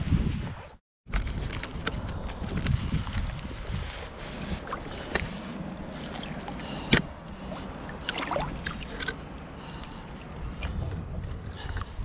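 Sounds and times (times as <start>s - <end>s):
fish splashing in shallow water: 4.1s - 9.4s.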